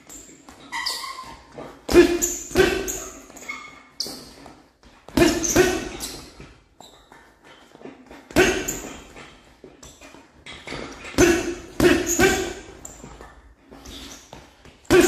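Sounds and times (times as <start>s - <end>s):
gloved punches on heavy bag: 1.9s - 3.1s.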